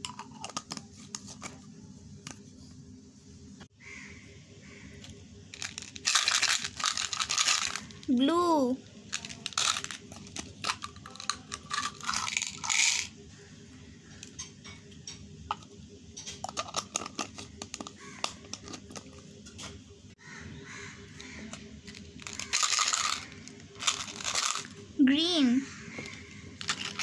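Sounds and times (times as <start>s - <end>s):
candies clicking and rattling: 5.5s - 8.1s, 9.1s - 13.1s, 16.4s - 19.2s, 21.8s - 24.8s, 26.0s - 27.0s.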